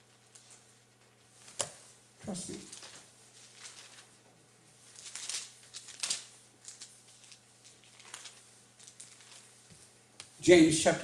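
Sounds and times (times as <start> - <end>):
thin pages rustling: 0.1 - 10.3.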